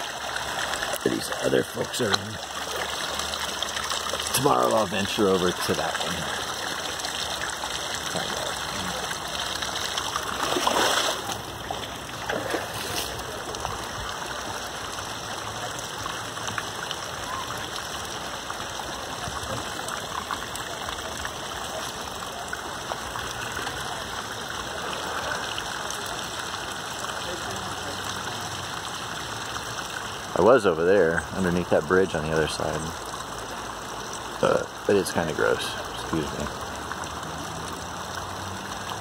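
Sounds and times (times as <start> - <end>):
water swishing: 0.0 - 15.1
flowing water rushing: 0.0 - 39.0.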